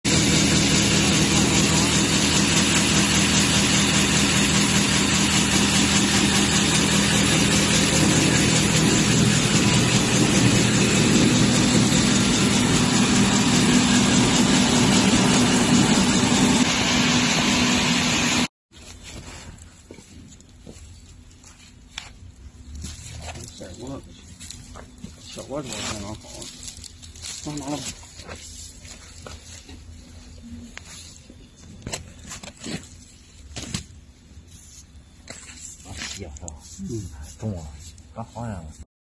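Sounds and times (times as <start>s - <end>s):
cutting machine running: 0.1s - 18.5s.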